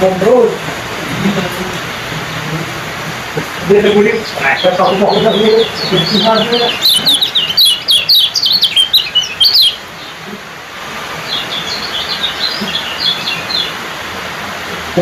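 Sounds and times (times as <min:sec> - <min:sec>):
bird chirping: 0:03.4 - 0:13.9.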